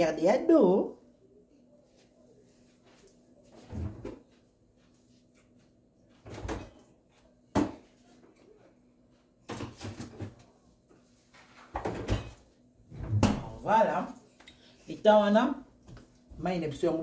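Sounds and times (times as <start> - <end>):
kitchen knocks and bumps: 7.5 - 7.9, 9.5 - 10.5, 11.7 - 13.6.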